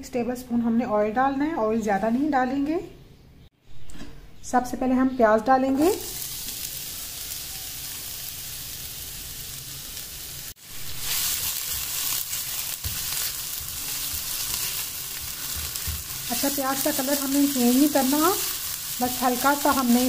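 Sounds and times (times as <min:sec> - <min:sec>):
onions sizzling in oil: 0:05.7 - 0:20.0
spatula stirring in pan: 0:10.7 - 0:20.0.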